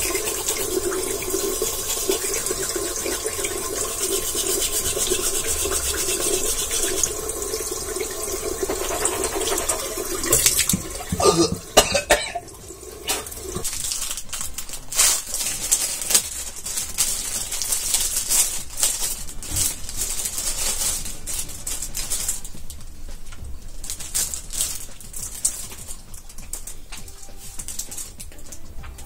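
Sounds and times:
plastic bag crinkling: 13.0s - 29.0s.

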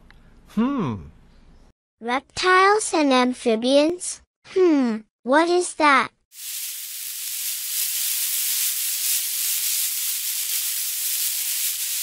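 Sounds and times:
cartoon snake hiss: 6.4s - 12.0s.

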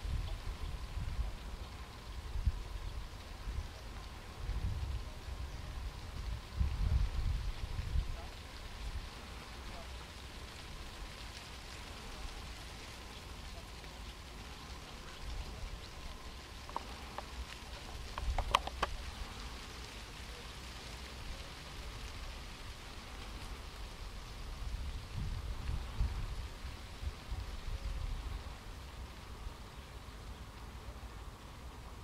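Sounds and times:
steady hiss: 0.0s - 32.0s
sharp clicks: 18.1s - 19.0s.

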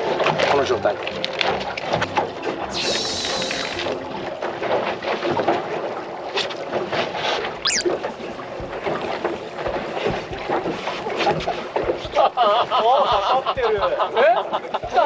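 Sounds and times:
water washing against hull: 0.0s - 15.0s
high sweeping squeak: 7.6s - 7.9s.

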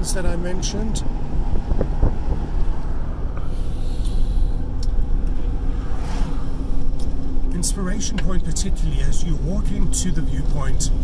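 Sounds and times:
car road rumble and tyre noise: 0.0s - 11.0s
van whooshing past: 1.1s - 7.4s.

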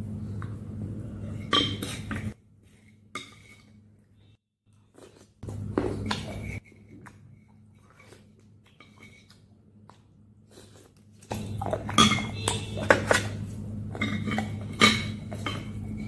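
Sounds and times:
spoon clinking in glass bowl: 11.4s - 13.3s.

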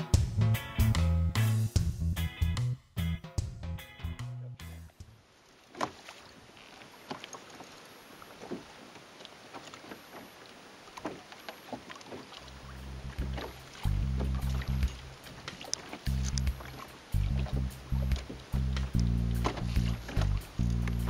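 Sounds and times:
background music: 0.0s - 5.0s
water lapping against kayak hull: 5.0s - 21.0s
sharp water splashes: 5.2s - 21.0s.

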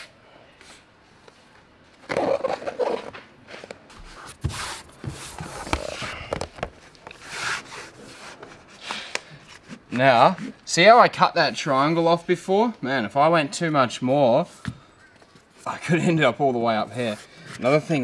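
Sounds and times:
foam rustling and scraping: 2.0s - 10.6s.

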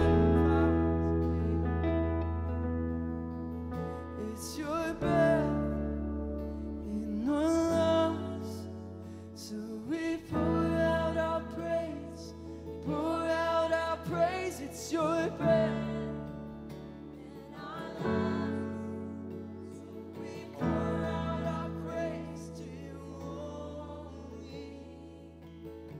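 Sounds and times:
worship band singing: 0.0s - 2.3s, 9.8s - 25.7s
guitar and keyboard chords: 0.0s - 25.9s.

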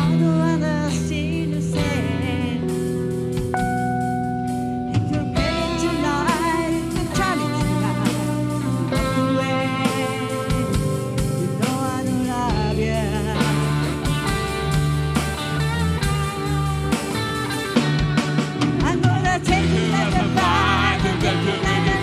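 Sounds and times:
person singing: 0.0s - 2.8s, 4.6s - 14.6s, 18.7s - 22.0s
bass guitar: 0.0s - 22.0s
drums: 0.0s - 22.0s
electric guitars: 0.0s - 22.0s.

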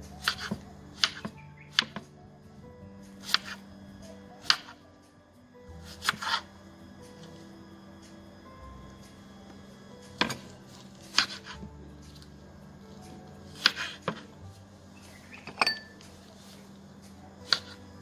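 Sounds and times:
knife striking cutting board: 0.2s - 2.0s, 10.2s - 10.5s.

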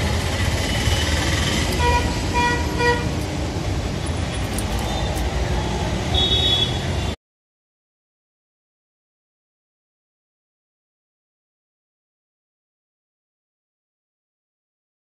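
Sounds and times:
street traffic: 0.0s - 7.2s
vehicle horn tooting: 0.9s - 3.2s, 6.1s - 7.2s.

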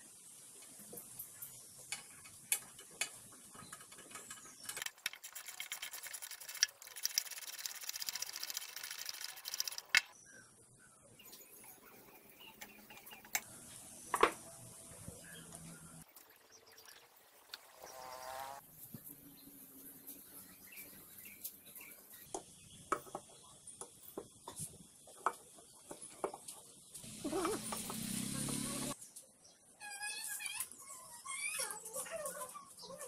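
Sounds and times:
metal parts clicking and knocking: 1.9s - 10.1s.

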